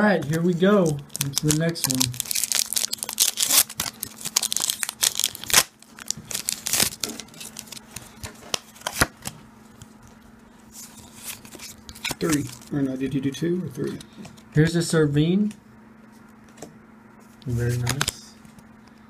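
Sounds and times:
handling of cards: 0:00.2 - 0:13.0, 0:16.1 - 0:18.7
foil wrapper crinkling and tearing: 0:00.3 - 0:09.1.

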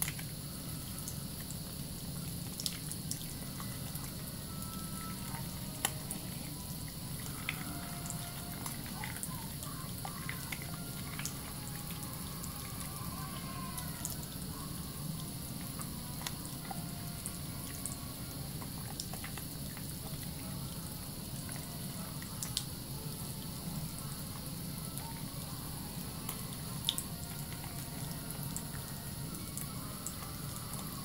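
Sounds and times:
tap water running into sink: 0:00.0 - 0:14.4, 0:15.1 - 0:22.7
soapy hands lathering: 0:15.0 - 0:22.8.

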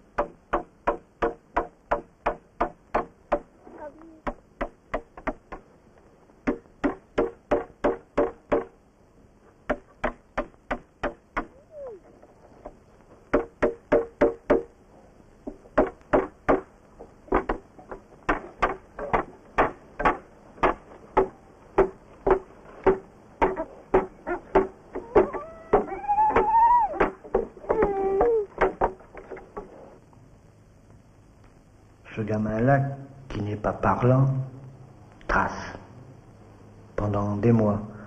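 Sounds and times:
sharp knocking on wood: 0:18.3 - 0:27.8.

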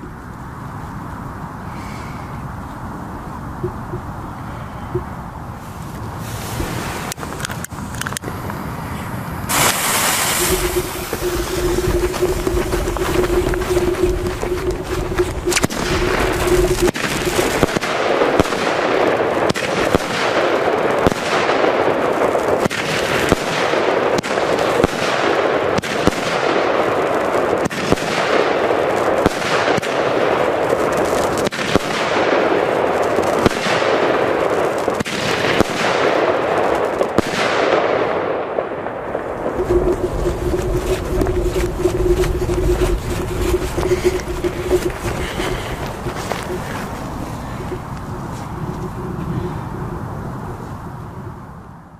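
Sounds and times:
firework star bursts crackling: 0:05.0 - 0:50.8
fireworks shots firing: 0:09.4 - 0:49.2.

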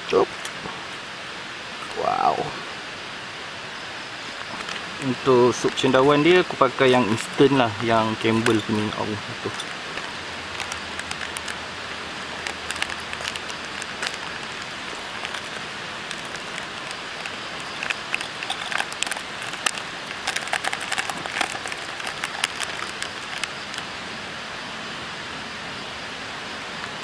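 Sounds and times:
river rushing: 0:00.3 - 0:25.3
plastic sachet crinkling and tearing: 0:07.1 - 0:11.6, 0:12.2 - 0:23.9.

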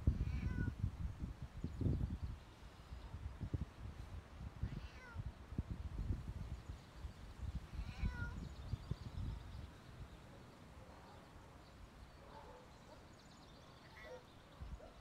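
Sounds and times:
wind buffeting microphone: 0:00.0 - 0:10.4
cat meowing: 0:00.2 - 0:00.7, 0:04.6 - 0:05.2, 0:07.8 - 0:08.4.

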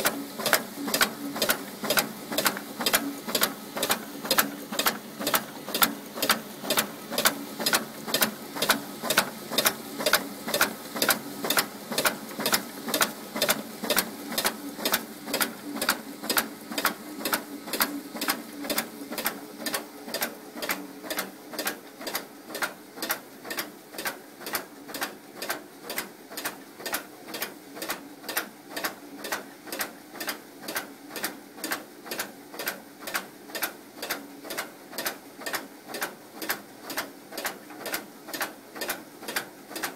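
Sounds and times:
machine clacking: 0:00.0 - 0:29.4.

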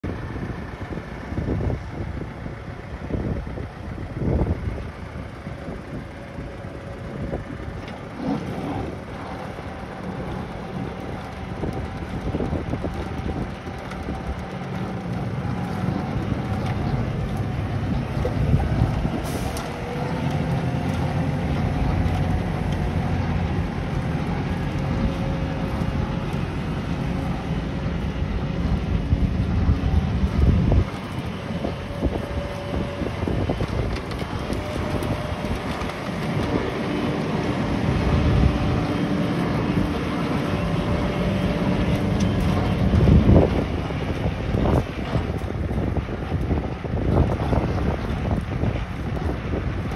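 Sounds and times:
tractor diesel engine running: 0:00.0 - 0:49.9
wind buffeting microphone: 0:00.0 - 0:49.9.

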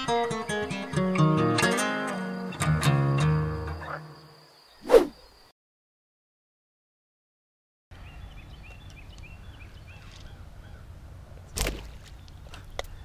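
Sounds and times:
bird chirping: 0:03.6 - 0:05.5, 0:08.0 - 0:10.9.

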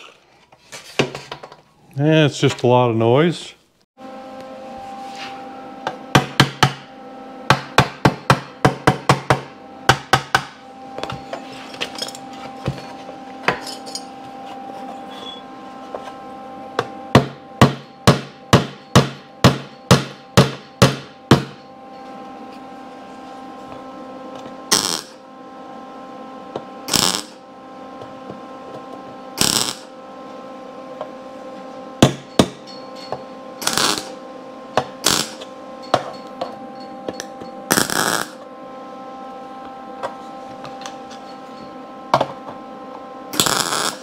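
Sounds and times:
welding crackle: 0:24.7 - 0:25.2, 0:26.9 - 0:27.4, 0:29.4 - 0:29.9, 0:33.6 - 0:34.2, 0:35.0 - 0:35.5, 0:37.7 - 0:38.4, 0:43.4 - 0:44.0.

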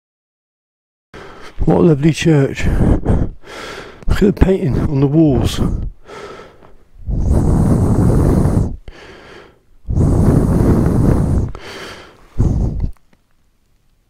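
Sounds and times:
breath blowing across microphone: 0:02.6 - 0:13.2.

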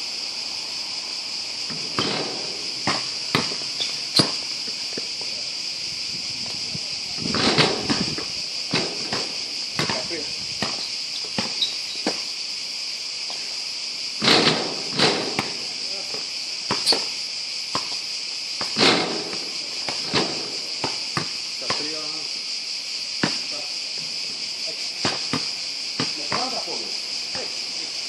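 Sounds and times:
cicadas droning: 0:00.0 - 0:28.0
basketball bouncing on hard court: 0:01.7 - 0:04.4, 0:07.3 - 0:11.7, 0:14.2 - 0:15.6, 0:16.7 - 0:17.1, 0:20.8 - 0:21.9, 0:25.0 - 0:26.6.

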